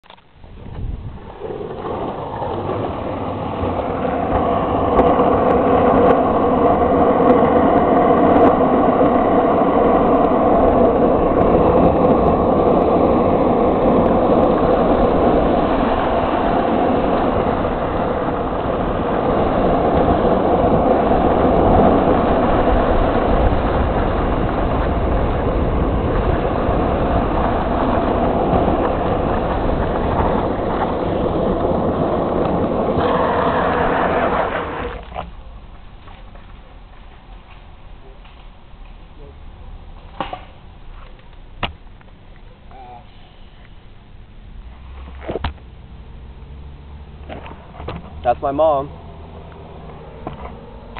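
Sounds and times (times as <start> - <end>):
rumbling road noise: 0.0 - 50.9
wind on microphone: 0.4 - 36.4.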